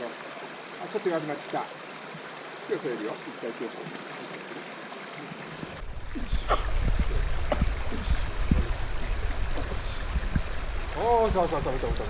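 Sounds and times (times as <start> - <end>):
stream running over stones: 0.0 - 12.0
low rumble: 5.8 - 12.0.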